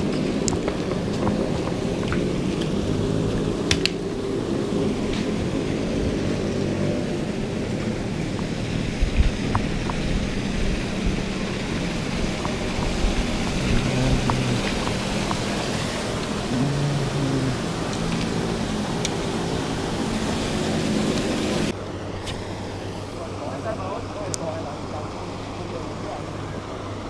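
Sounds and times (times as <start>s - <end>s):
pond aerator motor drone: 0.0s - 27.0s
splashing water hiss: 7.4s - 27.0s.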